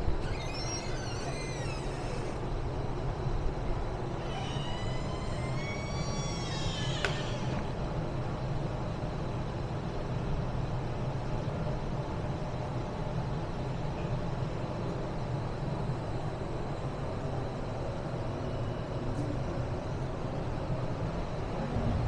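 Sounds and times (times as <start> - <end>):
traffic rumble: 21.4 - 22.0.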